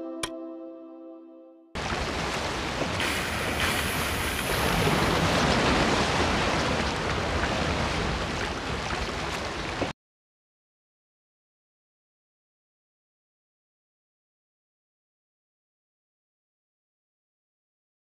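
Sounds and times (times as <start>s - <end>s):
ocean waves: 1.8s - 9.9s
wind: 1.8s - 9.9s.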